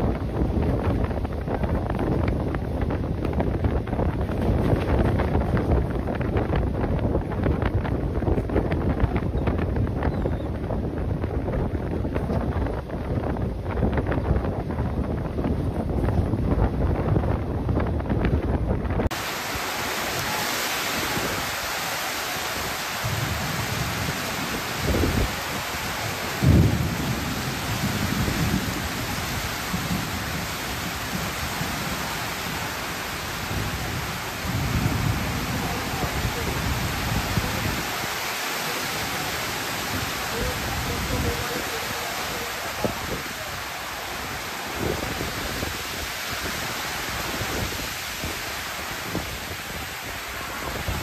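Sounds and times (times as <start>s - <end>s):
heavy rain falling: 0.0s - 51.0s
wind buffeting microphone: 0.0s - 51.0s
thunder rumbles: 22.6s - 38.1s.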